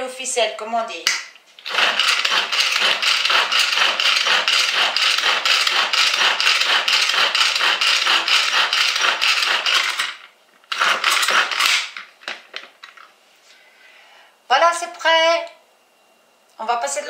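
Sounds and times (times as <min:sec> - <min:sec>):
pull-cord food chopper clattering: 0:01.6 - 0:12.0.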